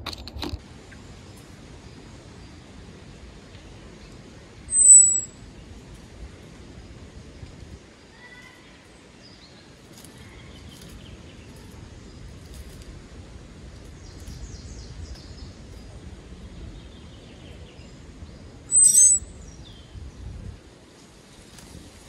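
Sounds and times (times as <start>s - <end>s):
songbirds calling: 3.7s - 6.0s, 6.6s - 20.4s
loud sharp bird call: 4.7s - 5.3s, 18.7s - 19.3s.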